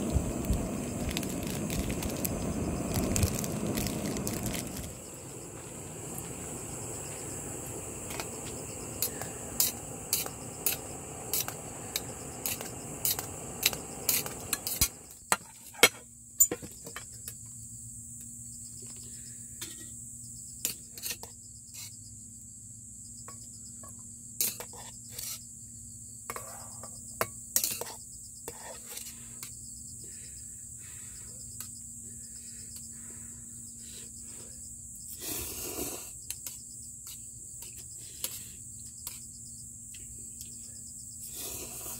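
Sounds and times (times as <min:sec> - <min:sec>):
gas stove burner hissing: 0:00.0 - 0:15.2, 0:35.0 - 0:36.6, 0:40.4 - 0:41.9
crickets chirping: 0:00.0 - 0:41.9.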